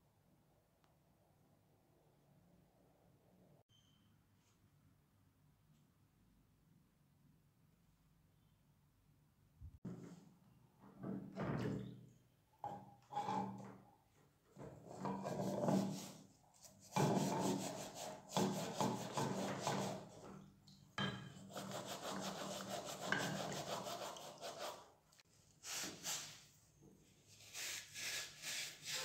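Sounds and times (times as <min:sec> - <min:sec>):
sponge scrubbing under water: 0:14.8 - 0:20.3, 0:21.3 - 0:24.9, 0:27.3 - 0:29.0.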